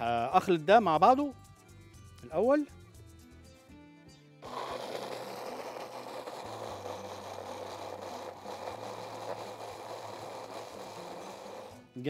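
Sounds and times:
electric hand blender running: 0:04.4 - 0:11.9.

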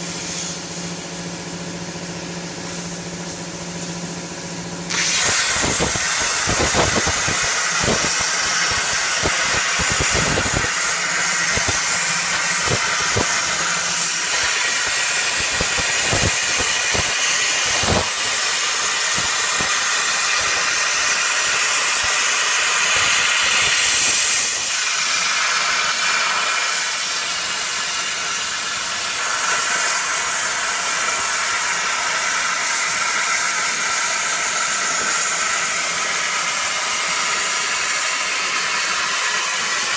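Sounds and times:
plasma cutter hissing: 0:00.0 - 0:39.9
sharp crackles and pops: 0:04.9 - 0:13.7, 0:14.3 - 0:22.2.

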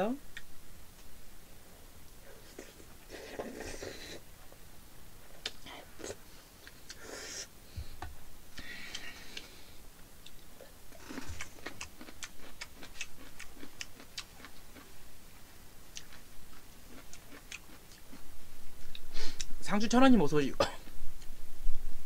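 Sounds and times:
close chewing: 0:10.2 - 0:15.0, 0:15.9 - 0:18.2.

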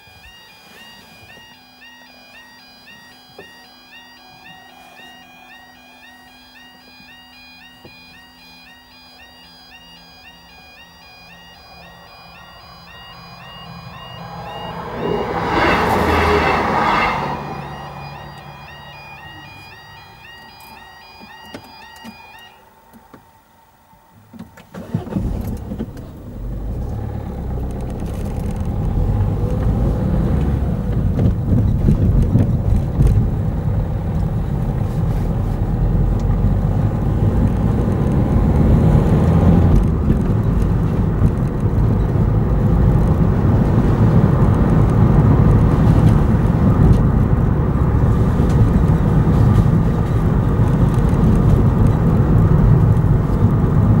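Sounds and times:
car engine: 0:00.0 - 0:54.0
tyres on wet road: 0:11.0 - 0:23.2, 0:24.4 - 0:54.0.

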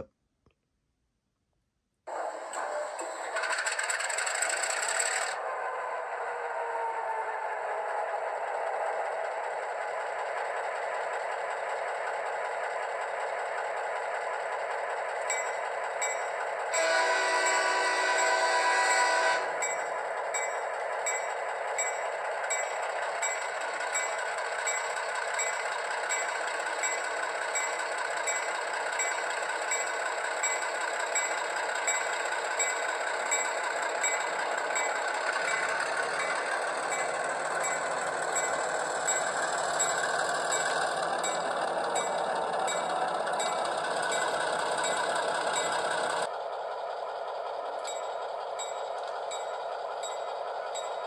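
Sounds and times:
diesel engine running: 0:02.1 - 0:51.0
locomotive bell ringing: 0:15.2 - 0:46.3, 0:47.7 - 0:51.0
locomotive horn blast: 0:16.7 - 0:19.6.

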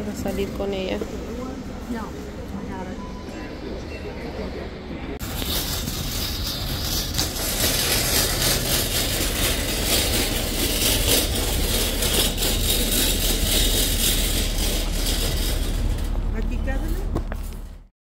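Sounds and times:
wire basket rattling: 0:05.2 - 0:16.2
shopping cart wheels rumbling: 0:05.2 - 0:17.9.

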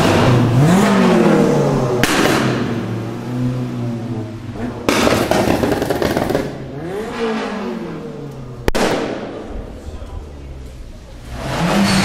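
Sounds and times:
car engine accelerating past: 0:11.2 - 0:12.0.

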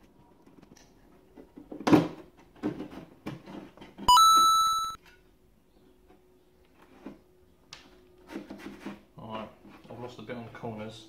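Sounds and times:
electronic beep: 0:04.1 - 0:05.0.

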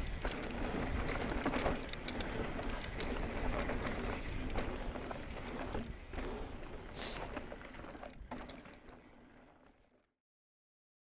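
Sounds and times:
bike tyres rolling on dirt: 0:00.0 - 0:10.0.

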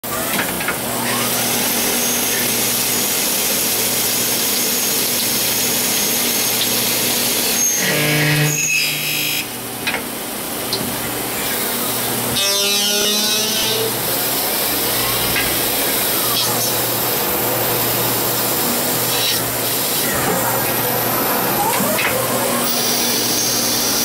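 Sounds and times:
pitched machine whine: 0:00.0 - 0:09.6, 0:11.1 - 0:24.0
lathe cutting hiss: 0:22.5 - 0:24.0.

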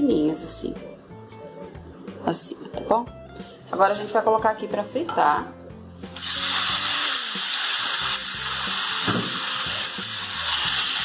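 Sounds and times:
beef sizzling in hot oil: 0:06.1 - 0:11.0.

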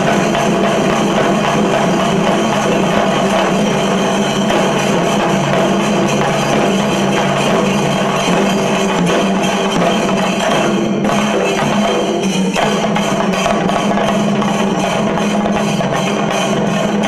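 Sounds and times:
drums beaten with sticks: 0:00.0 - 0:17.0
hand cymbals clashing: 0:00.0 - 0:17.0.

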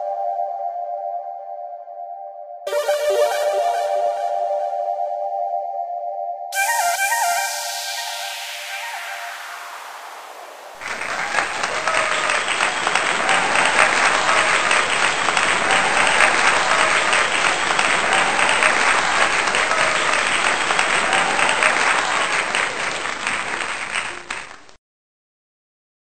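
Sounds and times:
audience applauding: 0:06.7 - 0:24.8.

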